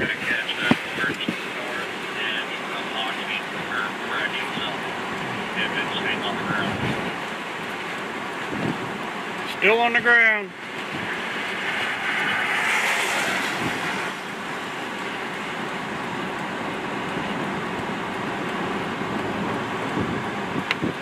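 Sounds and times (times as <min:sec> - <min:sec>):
car tyres hissing on wet road: 0:00.0 - 0:21.0
wind buffeting microphone: 0:06.4 - 0:09.4, 0:10.6 - 0:21.0.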